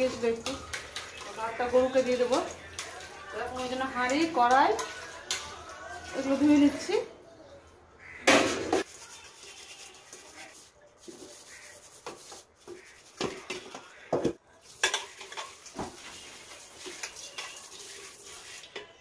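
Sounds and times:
pots rubbing and scraping: 8.8s - 14.1s
metal pots clanking: 13.2s - 16.1s.

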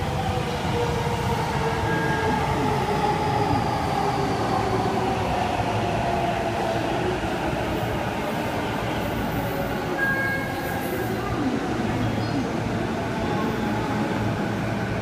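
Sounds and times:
high brake squeal: 10.0s - 11.2s.

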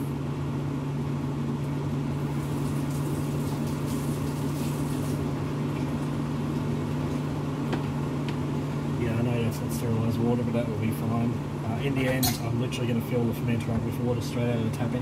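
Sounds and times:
low mechanical hum: 0.0s - 15.0s
water running from a tap: 2.2s - 7.3s.

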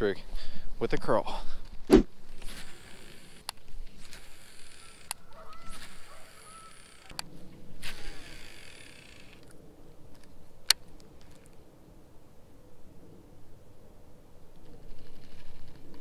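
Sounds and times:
reel spool whirring: 2.4s - 7.2s, 7.8s - 9.4s.

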